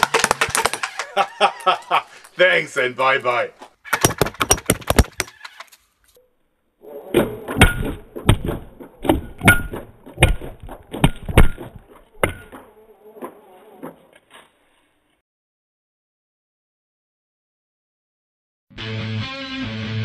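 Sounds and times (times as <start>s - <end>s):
balls striking with hard knocks: 0.0s - 1.2s, 3.9s - 5.5s, 7.1s - 12.7s.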